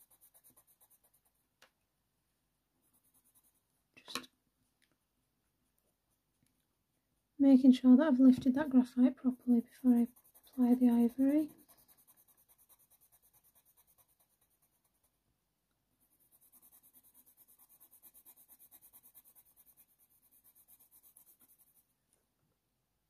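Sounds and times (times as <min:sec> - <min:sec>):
colour pencil strokes on paper: 0:00.0 - 0:01.4, 0:02.8 - 0:03.7, 0:08.4 - 0:15.2, 0:16.0 - 0:21.9.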